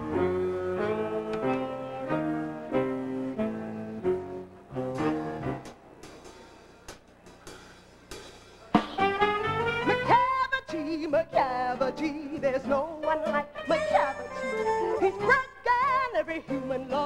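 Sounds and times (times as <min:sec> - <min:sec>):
pit band playing dance music: 0:07.5 - 0:10.4.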